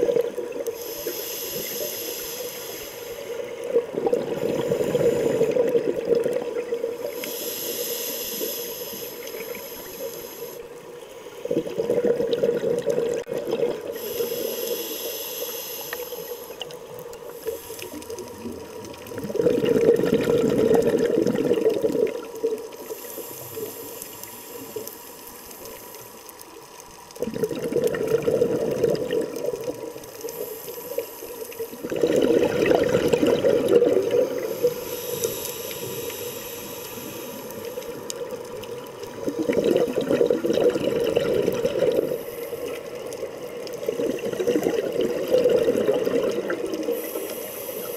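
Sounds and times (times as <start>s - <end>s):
regulator hissing inhale: 0.6s - 5.8s, 7.0s - 11.5s, 13.9s - 18.4s, 22.7s - 26.3s, 30.0s - 32.0s, 34.2s - 38.4s, 41.7s - 43.3s, 46.3s - 47.9s
bubbling exhalations underwater: 3.7s - 7.0s, 11.4s - 14.0s, 18.2s - 22.5s, 27.2s - 29.9s, 31.8s - 34.8s, 37.9s - 42.9s, 43.8s - 47.0s.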